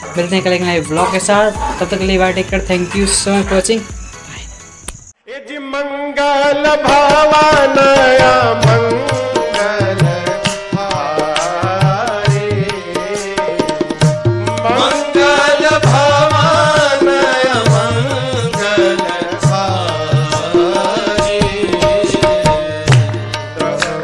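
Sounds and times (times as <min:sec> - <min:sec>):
steady drone note: 0:00.0 - 0:04.8
bending melody: 0:00.0 - 0:05.1.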